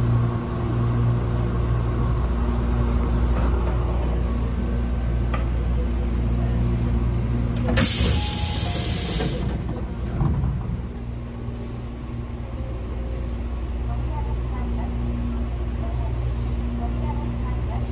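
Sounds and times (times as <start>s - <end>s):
air brakes hissing: 7.8s - 9.6s.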